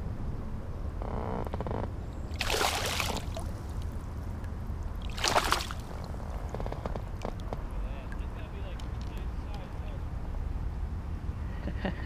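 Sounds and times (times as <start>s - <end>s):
water splashing: 2.3s - 6.5s.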